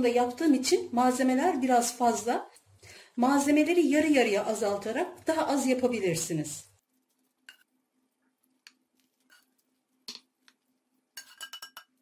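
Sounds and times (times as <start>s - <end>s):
wooden spoon scraping pan: 7.1s - 7.7s, 9.0s - 9.7s.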